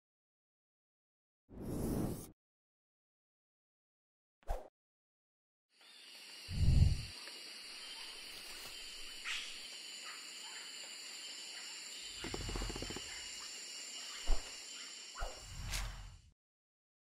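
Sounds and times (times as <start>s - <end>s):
high-pitched hiss: 5.8s - 10.0s.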